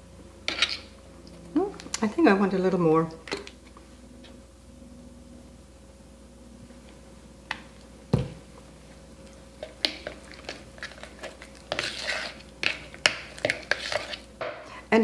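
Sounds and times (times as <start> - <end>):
spoon scraping in plastic cup: 0.5 - 0.9, 9.7 - 14.3.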